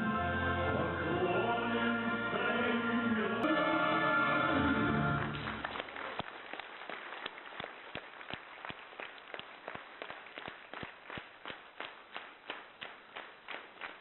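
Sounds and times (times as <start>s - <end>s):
music: 0.0s - 5.7s
audience clapping in unison: 5.0s - 14.0s.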